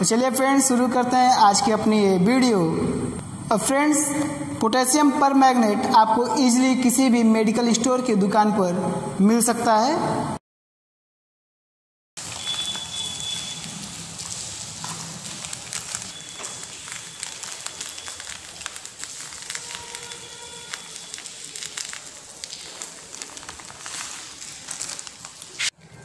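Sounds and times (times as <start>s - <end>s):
granules pattering on concrete: 12.2s - 25.8s
plastic bag crinkling: 12.2s - 25.8s.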